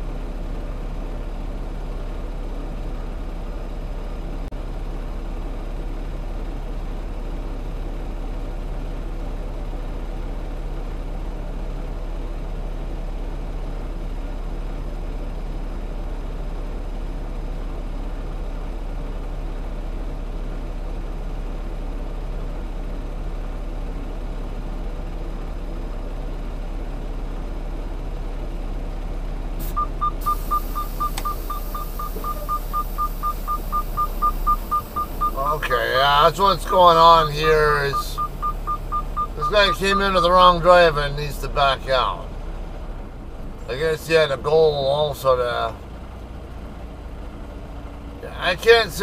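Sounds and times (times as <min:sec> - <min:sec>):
diesel truck engine idling: 0:00.0 - 0:49.0
rapid high electronic beeping: 0:29.8 - 0:39.9
click: 0:31.1 - 0:31.4.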